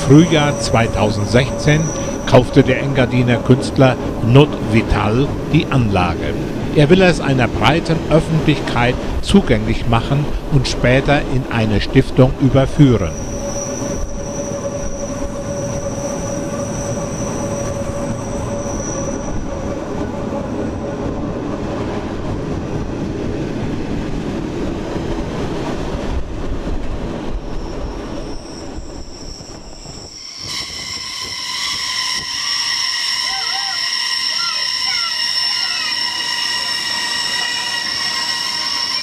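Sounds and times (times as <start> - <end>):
train wheels squealing on rails: 0.0 - 5.9, 12.6 - 20.5, 27.2 - 39.0
train running noise: 0.0 - 39.0.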